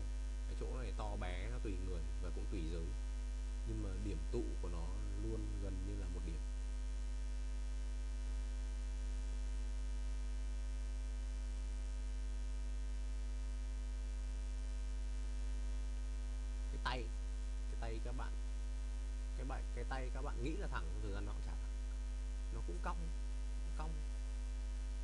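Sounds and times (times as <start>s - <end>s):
electrical mains hum: 0.0s - 25.0s
short vocal sound: 3.7s - 6.1s.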